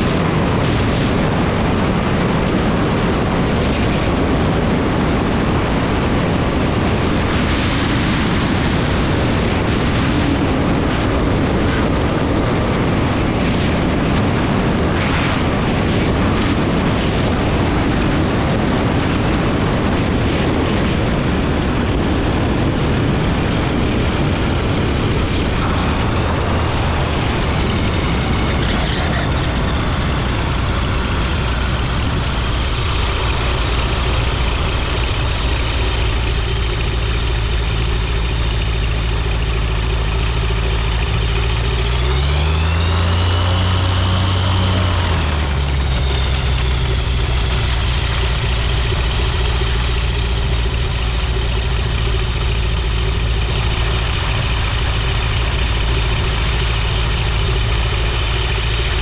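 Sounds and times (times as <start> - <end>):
engine and propeller running: 0.0 - 59.0
heavy wind rush on microphone: 0.0 - 59.0.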